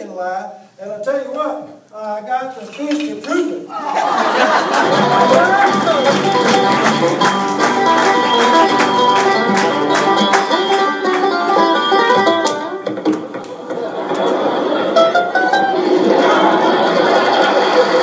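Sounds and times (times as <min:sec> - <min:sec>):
fast-picked banjo music: 0:04.7 - 0:18.0.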